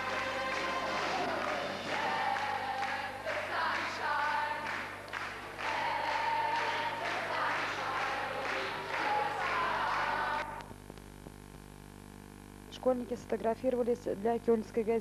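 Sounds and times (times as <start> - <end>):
group of voices singing: 0.0 - 10.6.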